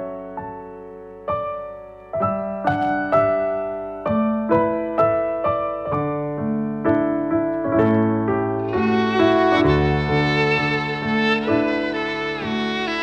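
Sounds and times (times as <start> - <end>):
gentle piano melody: 0.0 - 13.0.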